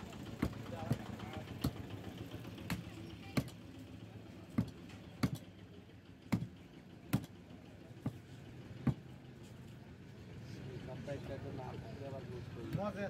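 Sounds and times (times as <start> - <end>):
cleaver chopping meat on wood: 0.3 - 1.8, 2.6 - 3.6, 4.5 - 5.5, 6.3 - 7.3, 8.8 - 9.0.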